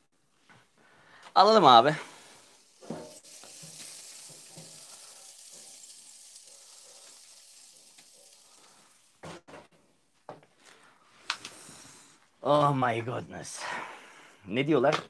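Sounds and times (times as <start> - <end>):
steak sizzling on grill: 1.7 - 9.2.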